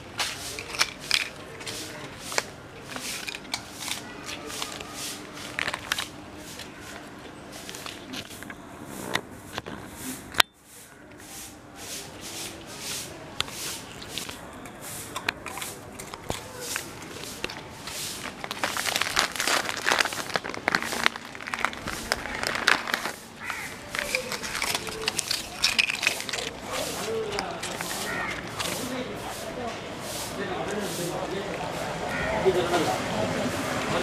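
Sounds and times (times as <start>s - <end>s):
dog crunching dry biscuits: 0.5s - 6.2s, 13.9s - 29.1s.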